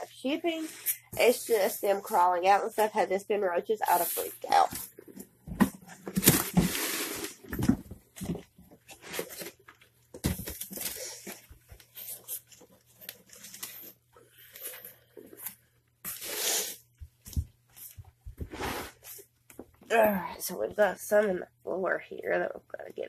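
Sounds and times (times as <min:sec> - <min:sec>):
packaging rustling and crinkling: 0:04.6 - 0:16.3.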